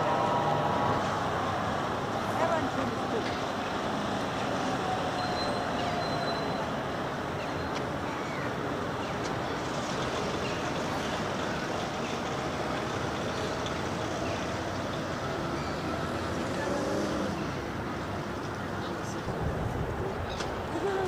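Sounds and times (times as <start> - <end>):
steady engine noise: 0.0 - 4.0.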